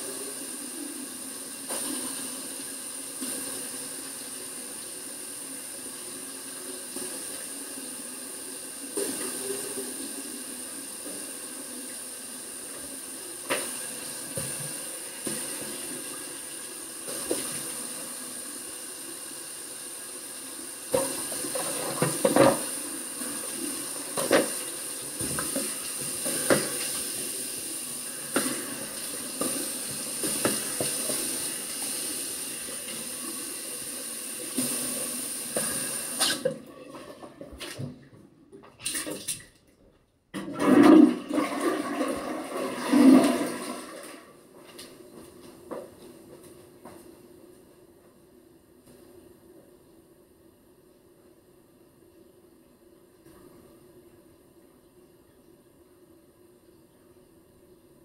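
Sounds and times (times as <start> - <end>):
sink tap running: 0.2 - 36.4.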